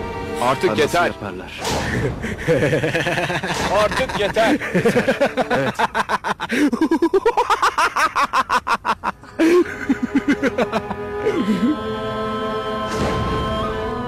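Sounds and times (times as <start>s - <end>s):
music with long held notes: 0.0s - 1.6s, 9.2s - 14.0s
man laughing loudly: 1.8s - 11.6s.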